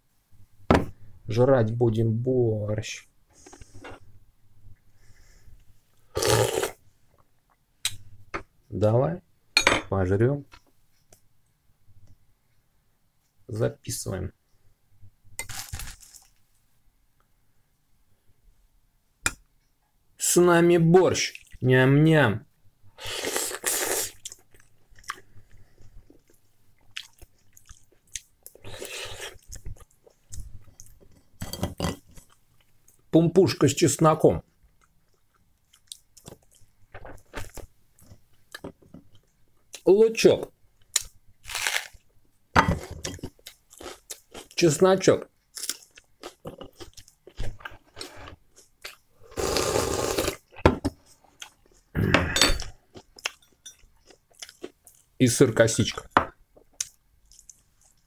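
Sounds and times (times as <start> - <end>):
close chewing and eating: 23.1 - 33.1, 34.4 - 39.9, 42.8 - 44.7, 45.3 - 55.2, 55.8 - 58.0
loud mouth sounds: 51.9 - 52.8.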